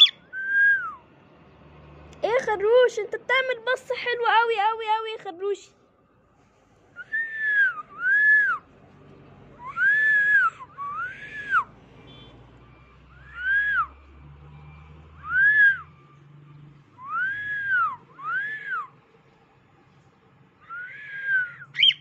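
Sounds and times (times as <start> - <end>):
cockatiel whistled calls: 0.0 - 0.8, 20.7 - 22.0.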